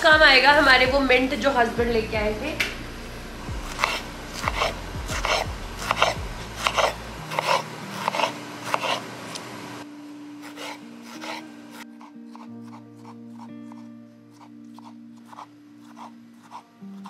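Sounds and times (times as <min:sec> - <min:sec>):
knife slicing on wooden board: 0:03.6 - 0:09.0, 0:10.4 - 0:11.4.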